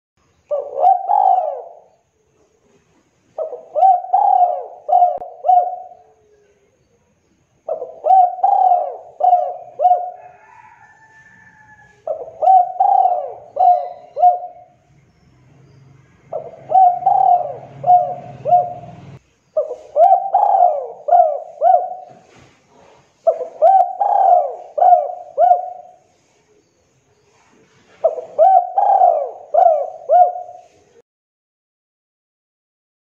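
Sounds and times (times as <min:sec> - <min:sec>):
dove cooing: 0:00.5 - 0:02.0, 0:03.4 - 0:06.6, 0:07.7 - 0:11.4, 0:12.0 - 0:14.9, 0:16.2 - 0:26.1, 0:27.9 - 0:31.0.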